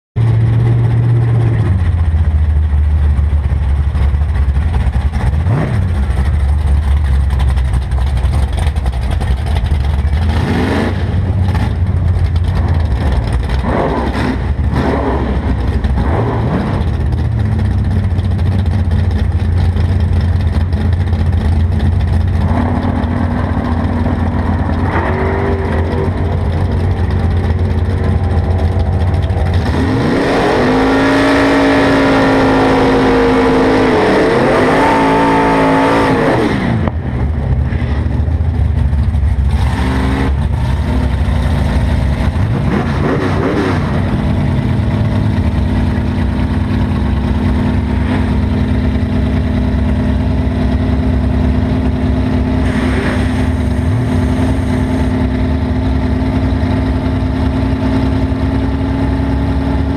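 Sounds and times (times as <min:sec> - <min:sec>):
car engine idling and revving: 0:00.2 - 0:59.9.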